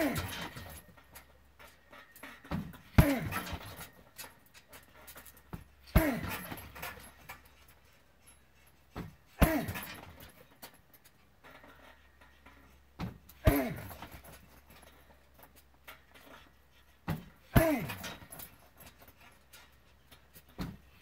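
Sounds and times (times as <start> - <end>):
kicks smacking a punching bag: 0.0 - 0.8, 2.5 - 3.9, 5.5 - 7.1, 9.0 - 10.3, 13.0 - 14.4, 17.0 - 18.5, 20.5 - 21.0.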